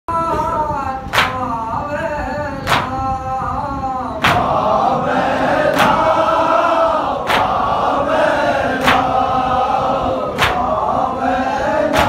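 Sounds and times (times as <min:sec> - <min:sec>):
chest slaps: 0:04.2 - 0:04.6, 0:10.4 - 0:10.7
men's voices chanting: 0:04.2 - 0:12.0.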